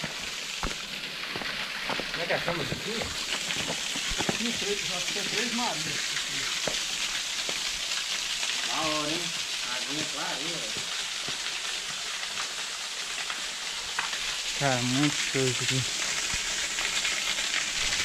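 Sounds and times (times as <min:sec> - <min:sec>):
bike tyres rolling over gravel: 0:00.6 - 0:06.0.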